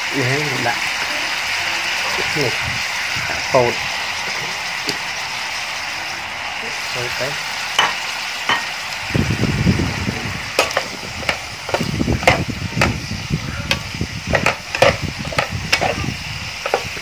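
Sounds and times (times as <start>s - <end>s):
food sizzling in a pan: 0.0s - 17.0s
spatula knocking against pan: 10.6s - 13.0s, 14.3s - 15.9s
spatula scraping a pan: 13.7s - 17.0s.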